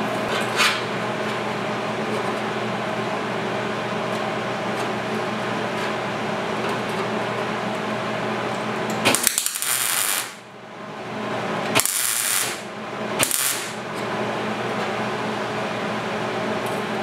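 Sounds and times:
steady background hum: 0.0 - 17.0
crackling welding bursts: 9.1 - 10.4, 11.8 - 13.8.

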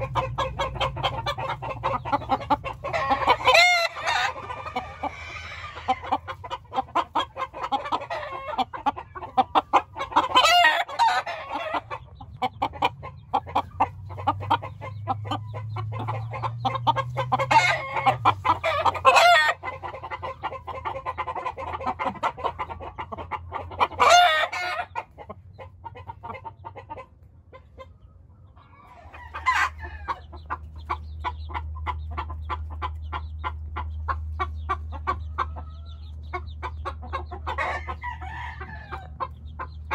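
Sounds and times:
chickens clucking: 0.0 - 39.9
rooster crowing: 2.9 - 6.0, 17.4 - 19.6, 28.7 - 30.2, 37.6 - 39.2.

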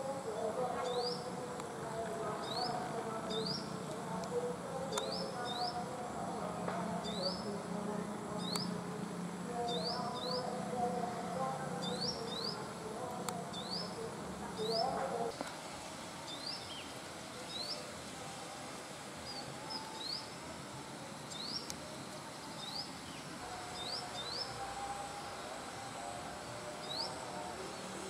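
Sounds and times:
sunbird high chirps: 2.4 - 3.8, 4.9 - 5.9, 7.0 - 7.5, 8.4 - 8.8, 9.7 - 10.6, 13.5 - 15.0, 16.3 - 17.9, 21.2 - 21.8, 22.5 - 24.6, 26.8 - 27.2.

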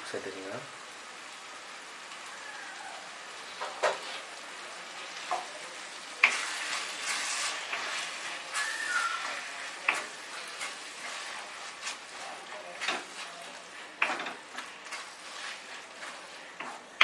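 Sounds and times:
vegetables sizzling in pan: 0.0 - 17.0
wooden spatula scraping pan: 6.2 - 17.0.

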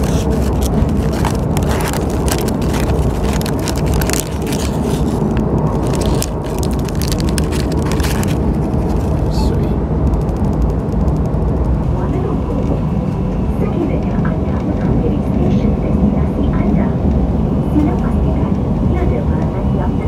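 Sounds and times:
crackling and scraping noises: 0.0 - 11.9
electric train rumbling: 0.0 - 20.0.

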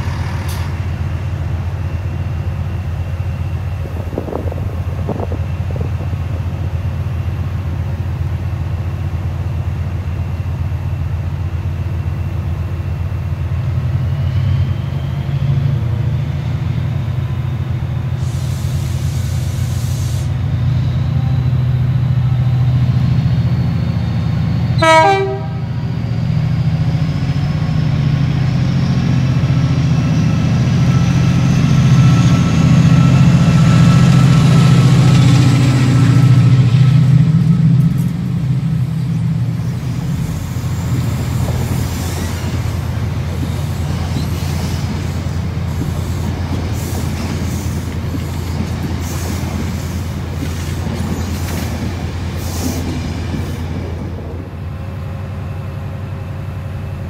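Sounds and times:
diesel locomotive engine: 0.0 - 57.0
hiss of air: 18.1 - 20.4, 40.0 - 53.7
train horn toot: 24.8 - 25.8.

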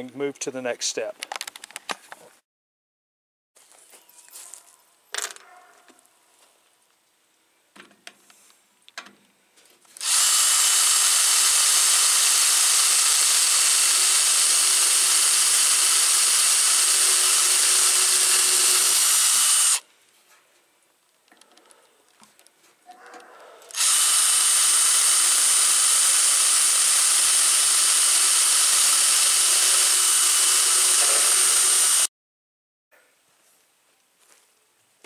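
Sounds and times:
cordless drill drilling sheet metal: 10.0 - 19.8, 23.7 - 32.1
faint clicks and knocks: 20.2 - 23.3.

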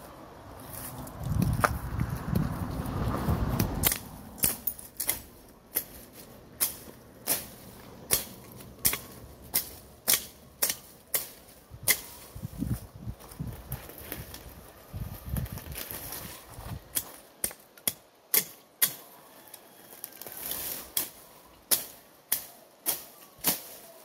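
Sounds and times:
rustle of cut vegetation: 0.0 - 17.4, 18.9 - 24.0
machete chopping weeds: 3.5 - 12.3, 16.9 - 19.1, 20.7 - 24.0.

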